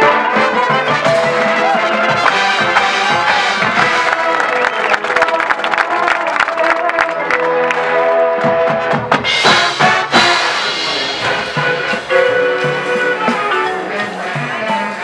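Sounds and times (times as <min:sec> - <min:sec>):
brass sustained chords: 0:00.0 - 0:15.0
drum hits: 0:08.5 - 0:15.0.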